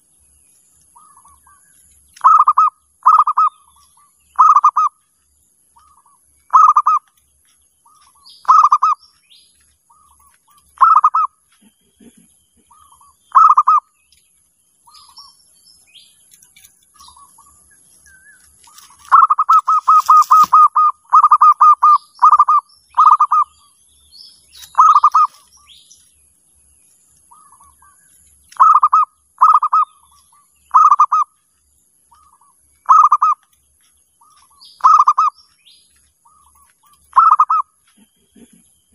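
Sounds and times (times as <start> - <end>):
dove cooing: 2.2 - 5.0, 5.8 - 7.1, 8.0 - 9.0, 9.9 - 13.9, 18.8 - 23.5, 24.7 - 25.5, 27.3 - 30.0, 30.7 - 31.3, 32.1 - 33.4, 34.2 - 35.4, 36.3 - 38.9.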